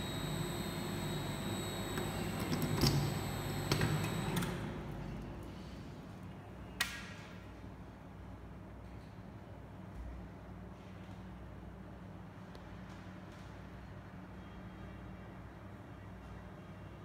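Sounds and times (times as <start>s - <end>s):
machine hum and whine: 0.0s - 6.8s.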